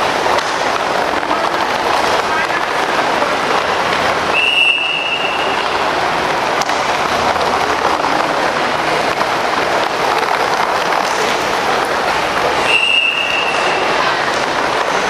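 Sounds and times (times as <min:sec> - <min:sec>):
roller skates rolling: 0:00.0 - 0:15.0
skate wheel clicks: 0:04.9 - 0:15.0.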